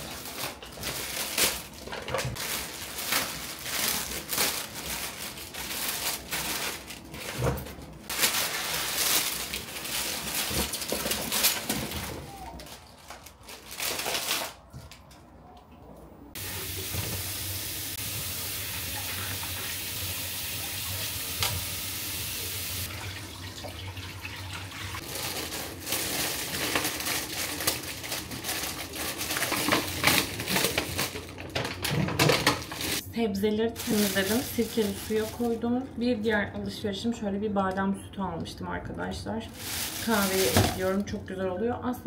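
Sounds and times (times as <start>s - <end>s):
tap water running into sink: 16.4s - 25.0s.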